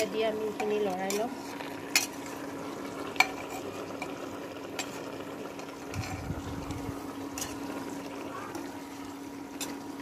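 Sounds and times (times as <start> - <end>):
steady low hum: 0.0 - 10.0
metal spoon stirring in pot: 0.5 - 2.4, 3.0 - 6.5, 7.2 - 8.7, 9.6 - 9.9.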